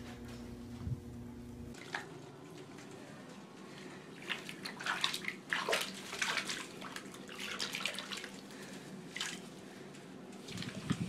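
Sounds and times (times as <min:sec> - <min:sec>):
bathwater splashing: 0:01.7 - 0:02.3, 0:04.1 - 0:09.8, 0:10.4 - 0:11.0.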